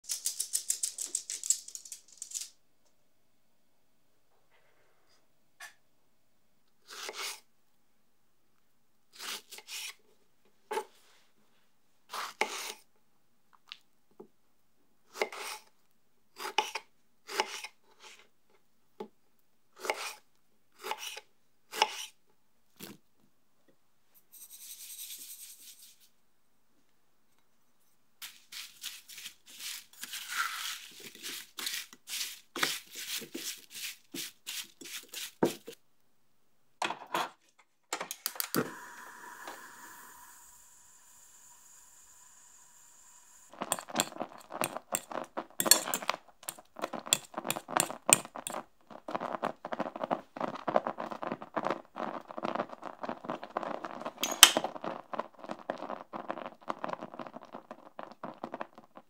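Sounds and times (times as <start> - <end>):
spatula stirring sticky fruit: 28.2 - 35.8, 43.5 - 54.1
faint steady hiss: 37.5 - 47.0.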